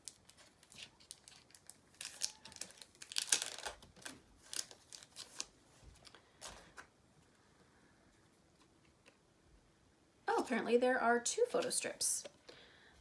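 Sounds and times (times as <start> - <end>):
packaging crinkling and rustling: 0.0 - 6.9.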